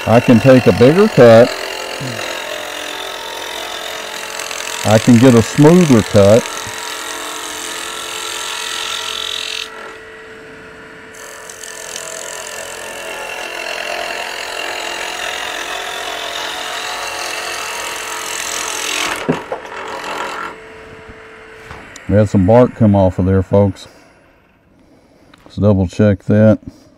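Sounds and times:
lathe humming: 0:00.0 - 0:25.4.

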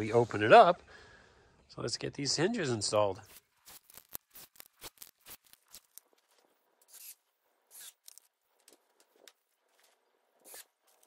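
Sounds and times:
plastic package rustling: 0:03.3 - 0:06.6.

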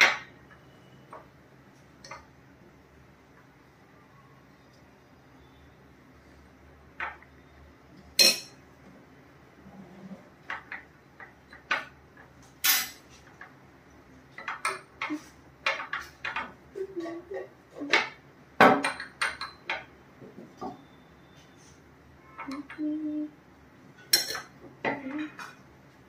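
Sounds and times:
spoons clinking against glasses: 0:08.1 - 0:08.6, 0:18.8 - 0:19.9, 0:24.0 - 0:24.6.

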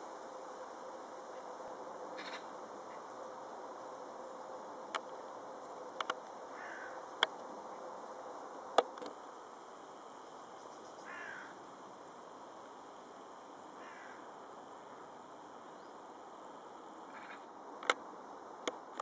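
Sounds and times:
outdoor background hiss: 0:00.0 - 0:19.0
distant bird calls: 0:02.2 - 0:03.2, 0:06.5 - 0:07.8, 0:10.2 - 0:11.6, 0:13.8 - 0:16.2, 0:17.0 - 0:17.5.

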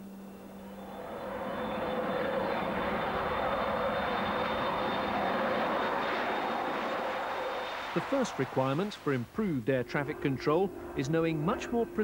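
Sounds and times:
jet airliner taking off: 0:00.0 - 0:12.0.

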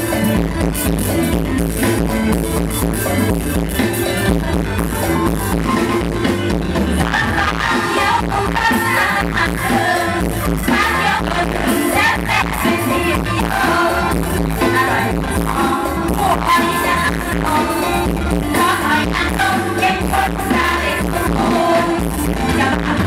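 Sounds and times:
amplified band with driving beat: 0:00.0 - 0:23.0
woman singing: 0:07.0 - 0:23.0.

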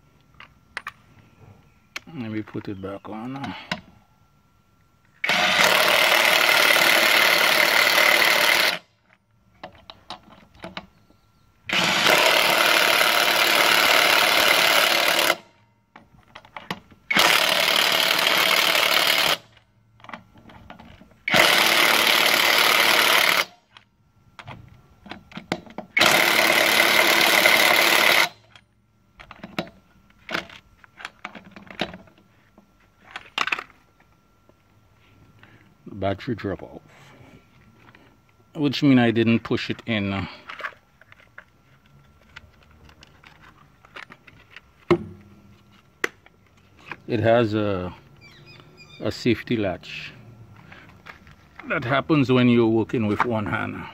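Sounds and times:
impact wrench tightening nuts: 0:25.9 - 0:28.4.

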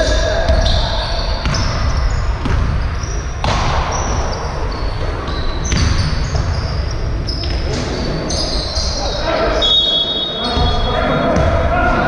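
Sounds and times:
sneakers squeaking on floor: 0:00.0 - 0:12.0
basketball bouncing: 0:00.4 - 0:08.0, 0:10.6 - 0:11.7.

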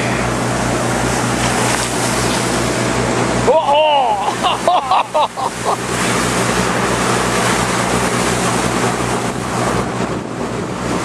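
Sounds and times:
motorboat engine humming: 0:00.0 - 0:11.0
water rushing from wake: 0:00.0 - 0:11.0
wind on microphone: 0:05.9 - 0:11.0.

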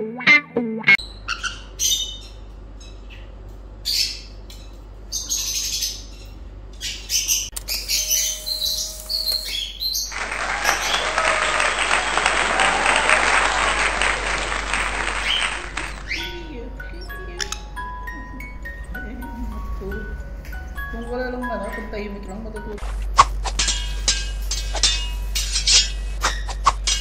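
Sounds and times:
parrot chirping and squawking: 0:01.0 - 0:02.4, 0:03.0 - 0:04.4, 0:05.1 - 0:11.0, 0:23.5 - 0:27.0.

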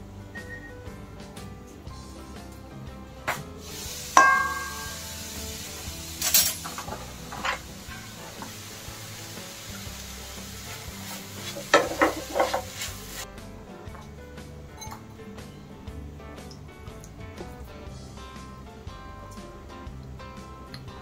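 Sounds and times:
faint music: 0:00.0 - 0:21.0
glass lid clinking on pan: 0:04.2 - 0:05.0
spatula knocking and scraping pan: 0:04.2 - 0:05.1, 0:06.5 - 0:08.6, 0:10.6 - 0:13.2.

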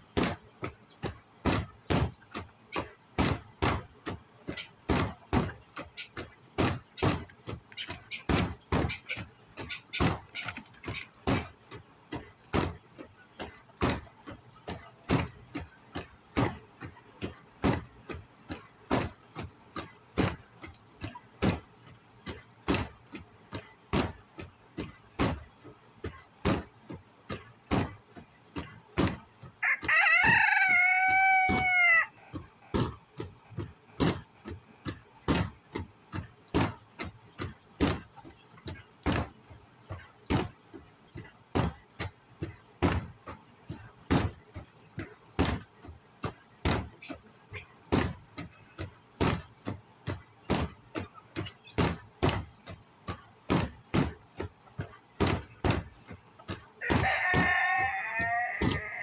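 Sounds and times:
sharp knocks: 0:00.0 - 0:59.0
rooster crowing: 0:29.6 - 0:32.2, 0:56.8 - 0:59.0.

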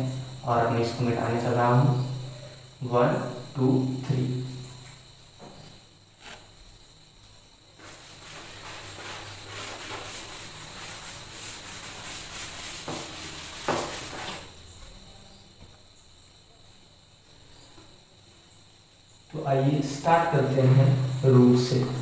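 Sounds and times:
duster rubbing chalkboard: 0:06.2 - 0:06.5, 0:07.8 - 0:14.6.

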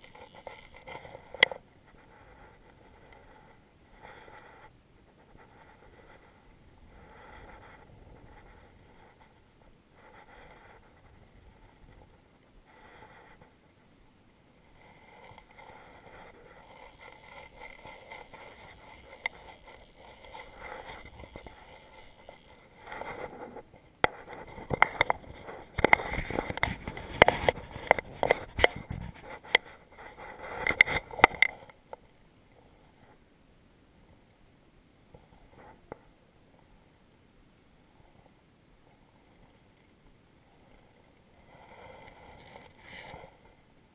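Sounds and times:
water noise: 0:14.8 - 0:23.3
fish splashing and thrashing: 0:16.4 - 0:22.6.

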